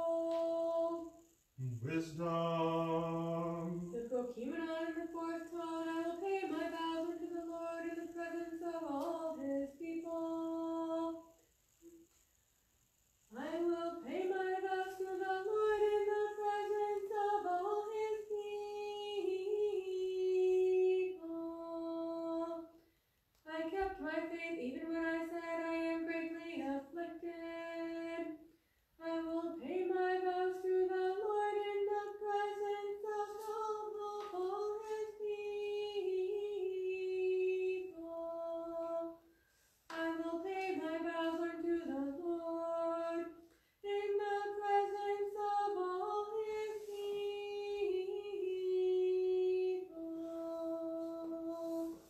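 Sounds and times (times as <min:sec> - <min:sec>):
person chanting a hymn: 0:01.6 - 0:11.0.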